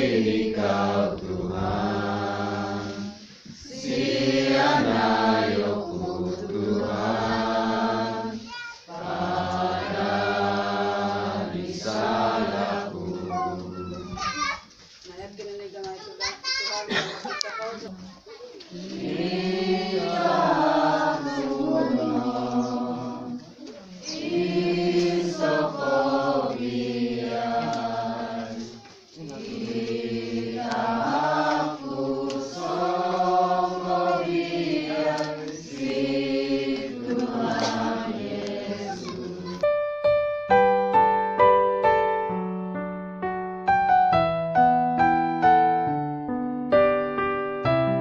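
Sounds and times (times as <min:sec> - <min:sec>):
congregation singing a hymn: 0:00.0 - 0:14.1, 0:18.7 - 0:39.7
electric piano tune: 0:39.6 - 0:48.0.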